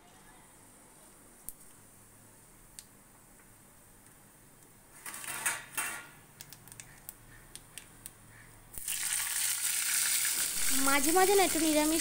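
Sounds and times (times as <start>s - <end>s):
seeds popping in hot oil: 6.4s - 12.0s
chillies sizzling in oil: 8.8s - 12.0s.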